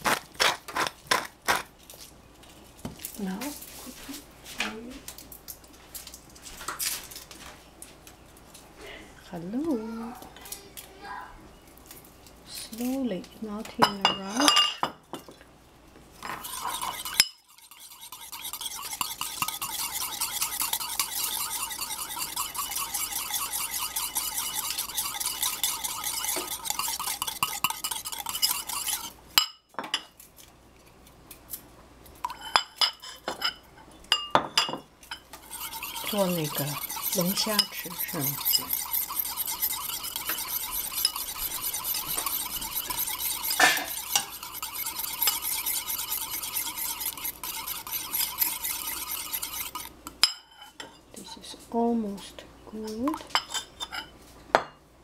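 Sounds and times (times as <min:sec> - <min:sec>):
wire whisk rattling in bowl: 0:16.4 - 0:29.1, 0:35.1 - 0:50.0.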